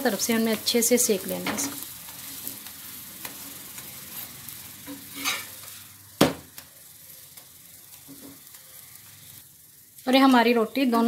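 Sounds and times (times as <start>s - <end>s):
flatbread sizzling in oil: 0.0s - 11.0s.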